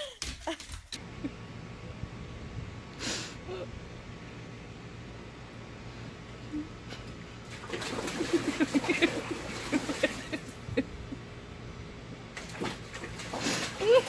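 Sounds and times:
dog splashing water: 0:07.4 - 0:10.7, 0:12.3 - 0:14.0.

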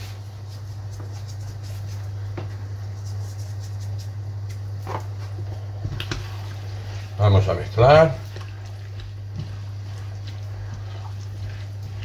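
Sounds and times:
steady low hum: 0:00.0 - 0:12.0
pot of water boiling: 0:03.8 - 0:12.0.

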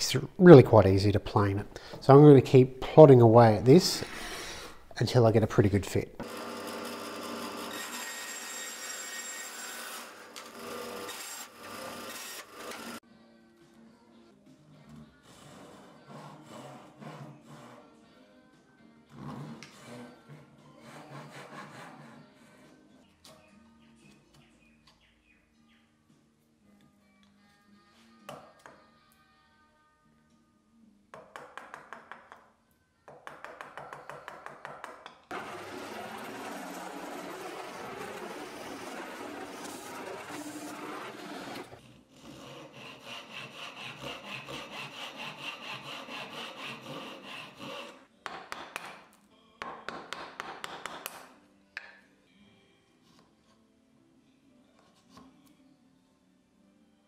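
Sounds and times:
bandsaw cutting wood: 0:04.0 - 0:04.9, 0:06.2 - 0:13.0, 0:35.3 - 0:48.0
drill press boring wood: 0:06.2 - 0:13.0, 0:35.3 - 0:48.0.

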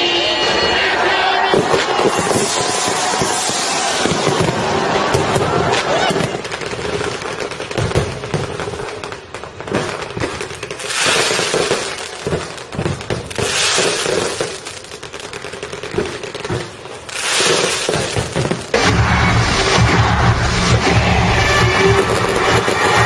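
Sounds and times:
fireworks popping and crackling: 0:01.4 - 0:19.4, 0:20.0 - 0:23.0
fireworks hiss: 0:01.8 - 0:04.7, 0:09.8 - 0:18.9.

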